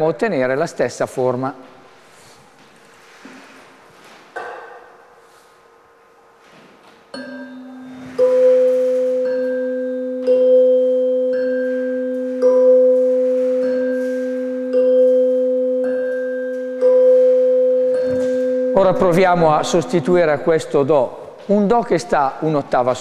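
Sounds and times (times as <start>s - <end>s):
tuning forks ringing: 7.1s - 21.1s
mallet striking tuning forks: 7.2s - 21.0s.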